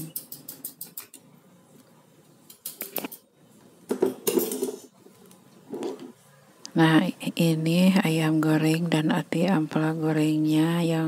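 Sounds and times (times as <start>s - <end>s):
utensils clattering: 4.0s - 4.9s
metal utensils clinking on a plate: 4.2s - 4.9s.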